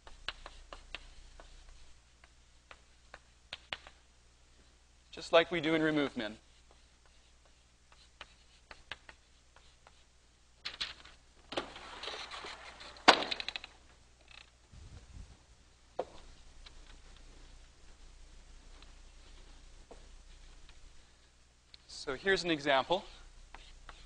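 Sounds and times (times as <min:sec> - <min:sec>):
chalk scraping rustle: 0:00.0 - 0:03.2, 0:05.7 - 0:10.1, 0:22.2 - 0:24.0
chalk clicking on chalkboard: 0:00.0 - 0:04.0, 0:06.3 - 0:10.0, 0:23.0 - 0:24.0.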